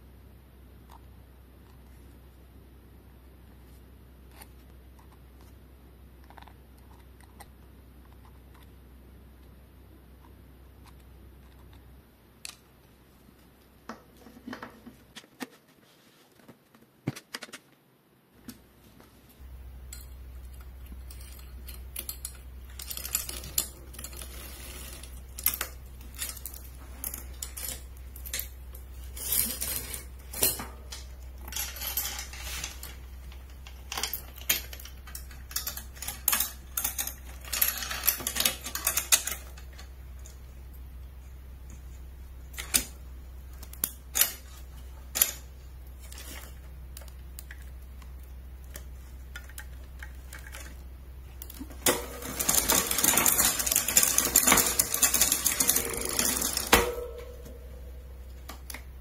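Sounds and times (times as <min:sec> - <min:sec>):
low steady hum: 0:00.0 - 0:17.2, 0:17.8 - 0:59.0
metal tools clinking and rattling: 0:19.9 - 0:39.9, 0:51.8 - 0:58.5.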